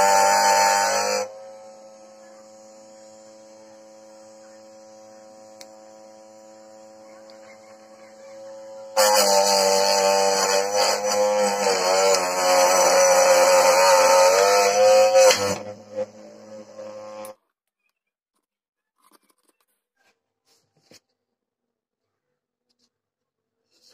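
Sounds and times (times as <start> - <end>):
small motor whining: 0.0 - 17.4
blade cutting chilli: 7.3 - 17.3.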